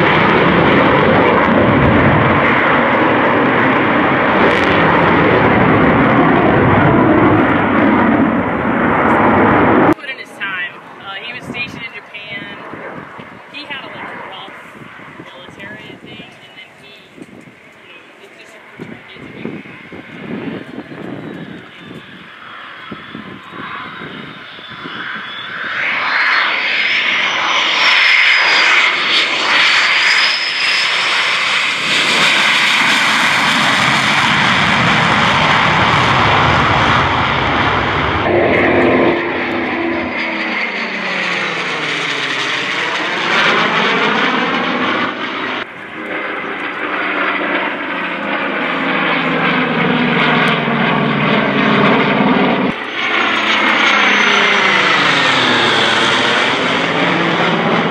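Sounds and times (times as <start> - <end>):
jet passing low: 0.0 - 57.9
piston engine plane flying by: 0.0 - 57.9.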